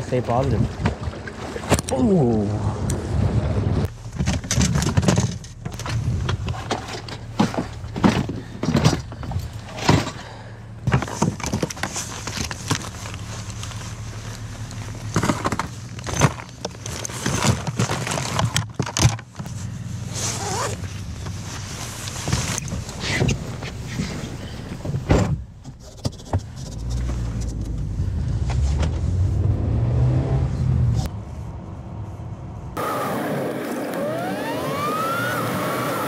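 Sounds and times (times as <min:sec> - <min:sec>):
knocks and clatter of gear: 0:03.9 - 0:29.1.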